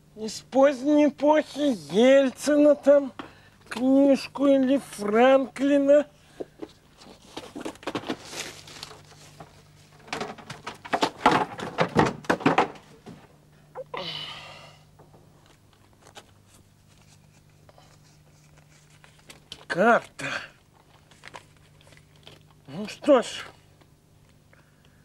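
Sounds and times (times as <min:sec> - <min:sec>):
faint low hum: 0:00.0 - 0:25.0
plastic bags and paper rustling: 0:06.6 - 0:12.2, 0:15.4 - 0:23.8.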